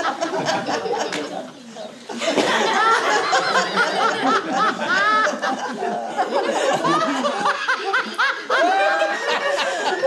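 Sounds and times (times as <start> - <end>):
group laughing: 0.0 - 10.0.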